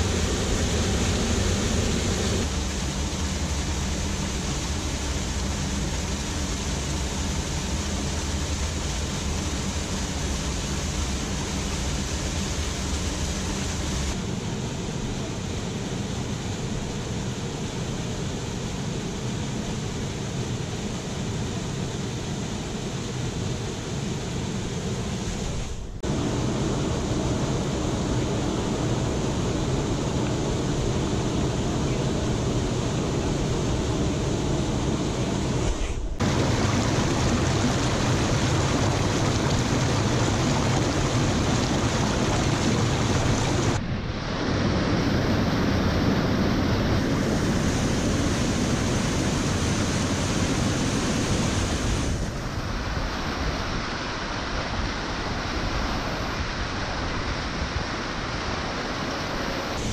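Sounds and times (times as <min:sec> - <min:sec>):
waterfall pouring into pool: 0:36.2 - 0:43.8.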